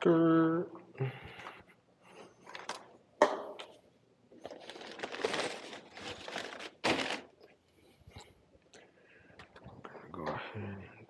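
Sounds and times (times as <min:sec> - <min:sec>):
plastic wrap crinkling: 0:04.4 - 0:07.5.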